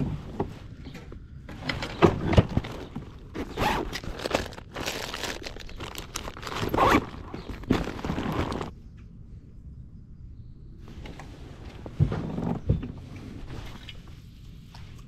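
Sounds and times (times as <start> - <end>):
plastic packets crinkling: 2.4 - 8.7.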